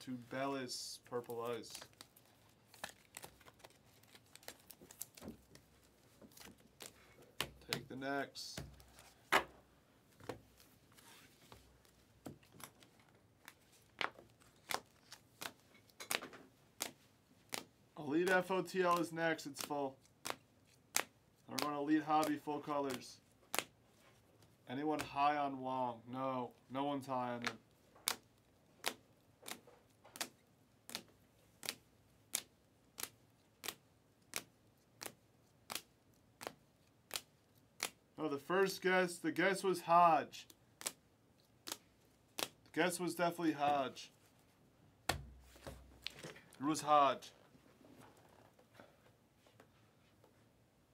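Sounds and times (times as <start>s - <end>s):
soft rustle of cards: 0.0s - 25.6s, 26.4s - 50.7s
cards being flipped clicking: 1.8s - 5.7s, 18.3s - 23.7s, 27.4s - 38.0s, 40.8s - 41.0s, 41.6s - 42.6s.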